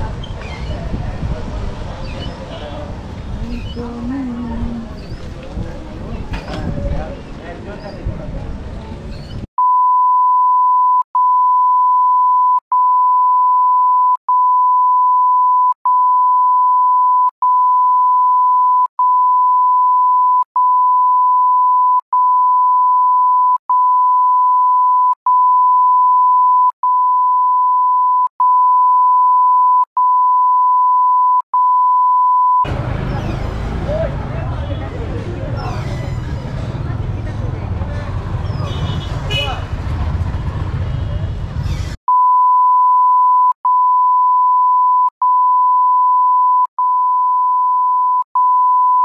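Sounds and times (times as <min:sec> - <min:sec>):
loud electronic beep tone: 0:42.1 - 0:49.0.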